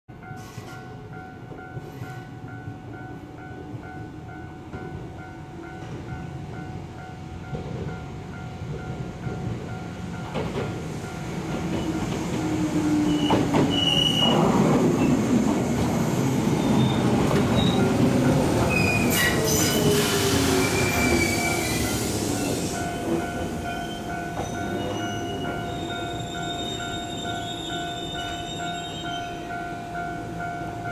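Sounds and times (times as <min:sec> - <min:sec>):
electric train rumbling: 0:00.1 - 0:30.9
level crossing warning bell: 0:15.8 - 0:19.9, 0:20.8 - 0:30.9.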